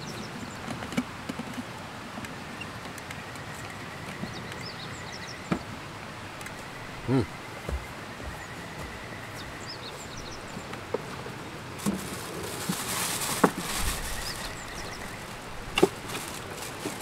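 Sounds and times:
small bird chirping: 0:06.4 - 0:10.7, 0:13.8 - 0:15.4
rustling: 0:06.4 - 0:17.0.

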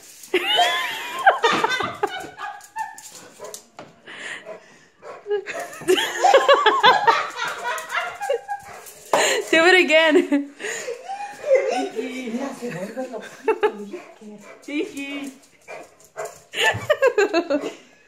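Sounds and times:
dog whining and yelping: 0:08.0 - 0:09.0.

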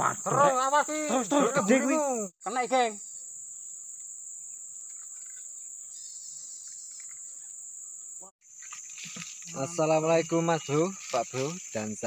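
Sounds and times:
insect chorus drone: 0:00.0 - 0:12.0
faint chirps: 0:02.2 - 0:12.0.

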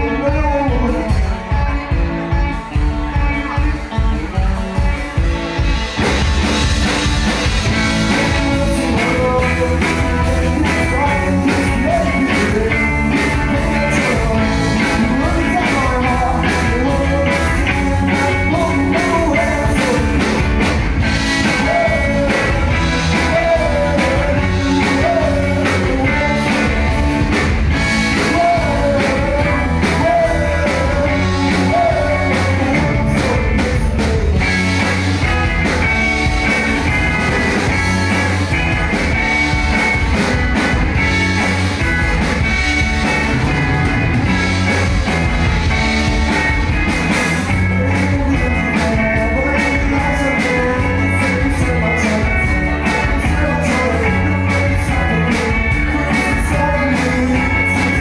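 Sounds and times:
person singing lead vocal: 0:00.0 - 0:02.1, 0:07.7 - 0:35.4, 0:47.2 - 0:58.0
drums: 0:00.0 - 0:58.0
electric guitar: 0:00.0 - 0:58.0.

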